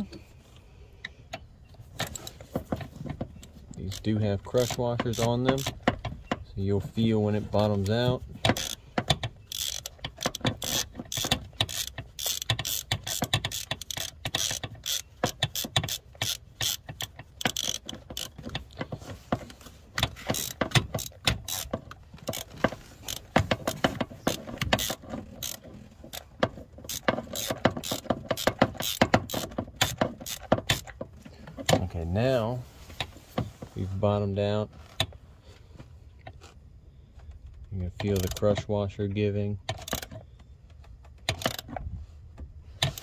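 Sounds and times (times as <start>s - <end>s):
hand ratchet clicking: 3.4s - 6.5s, 7.1s - 31.8s, 37.5s - 38.6s, 39.7s - 41.7s, 42.8s - 43.0s.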